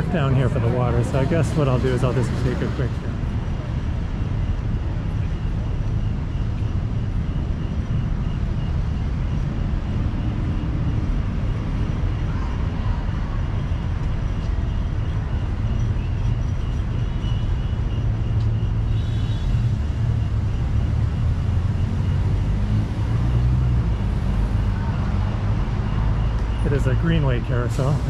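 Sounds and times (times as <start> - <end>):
busy road traffic rumble: 0.0 - 28.0.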